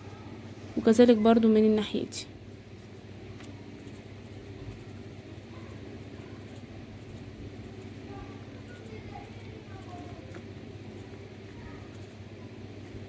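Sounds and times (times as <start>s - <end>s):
low mechanical hum: 0.0s - 13.0s
pencil scratching on paper: 3.8s - 13.0s.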